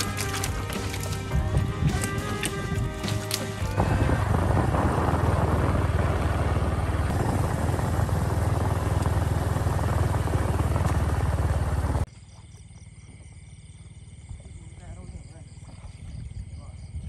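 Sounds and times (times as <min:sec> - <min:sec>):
small motorcycle engine running: 0:00.0 - 0:12.1
wind rush: 0:01.2 - 0:09.0.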